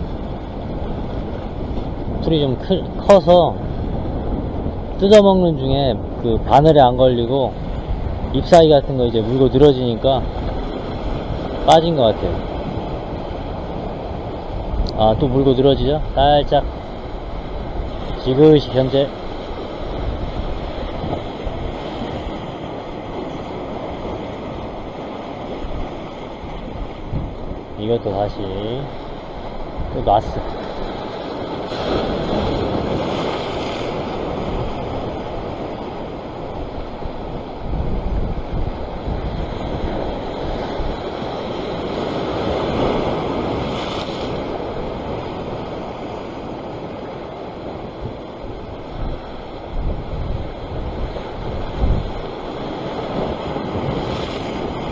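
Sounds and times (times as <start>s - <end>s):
sea surf washing over rocks: 0.0s - 54.9s
wind buffeting microphone: 0.0s - 54.9s.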